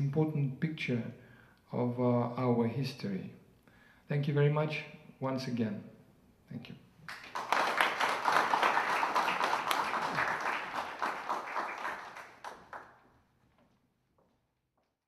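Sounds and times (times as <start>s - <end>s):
audience applauding: 7.1s - 13.2s.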